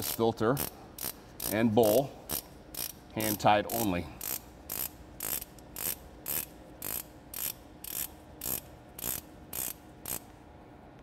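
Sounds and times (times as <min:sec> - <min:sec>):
ratchet pawl clicking: 0:00.0 - 0:10.3.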